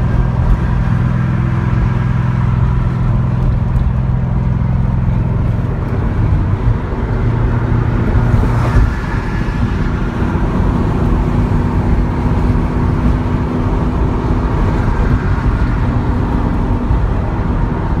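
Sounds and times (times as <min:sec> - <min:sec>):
car engine drone in cabin: 0:00.0 - 0:18.0.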